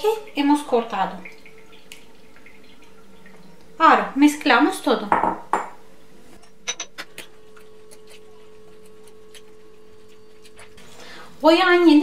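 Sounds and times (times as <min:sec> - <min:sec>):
faint steady hum: 0:00.0 - 0:12.0
metal utensil clinking on ceramic bowl: 0:06.4 - 0:07.0.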